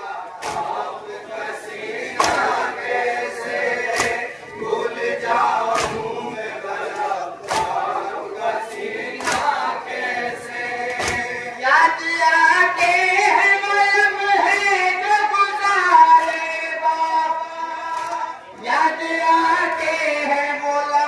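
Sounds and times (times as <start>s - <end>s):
men chanting through loudspeaker: 0.0s - 21.0s
chest beating slaps: 0.4s - 0.9s, 2.2s - 2.6s, 3.9s - 4.4s, 5.7s - 6.2s, 7.4s - 7.9s, 10.9s - 11.4s.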